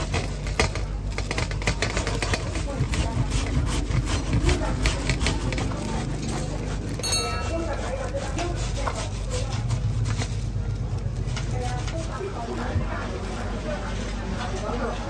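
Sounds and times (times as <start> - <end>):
grater rasping scrapes: 1.3 - 12.7
bell-like chime: 7.0 - 7.7.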